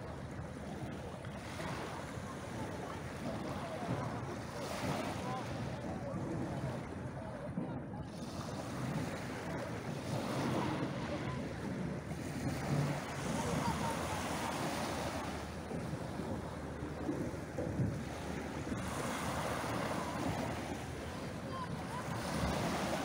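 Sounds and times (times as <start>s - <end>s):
waves breaking on pebble beach: 8.4s - 23.0s.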